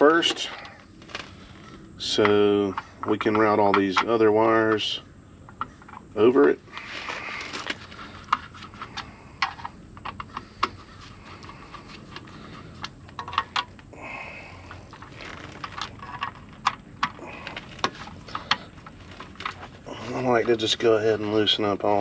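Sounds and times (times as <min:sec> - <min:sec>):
wires being handled: 0:14.6 - 0:20.8.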